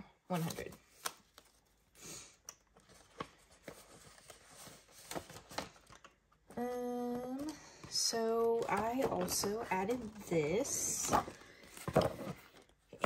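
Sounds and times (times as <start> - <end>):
paper rustling: 2.7 - 6.1.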